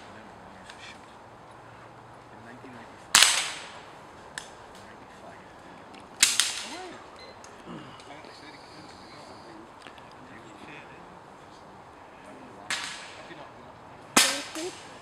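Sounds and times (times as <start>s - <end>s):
rifle shots: 3.1s - 3.8s, 6.2s - 6.8s, 12.7s - 13.4s, 14.2s - 15.0s.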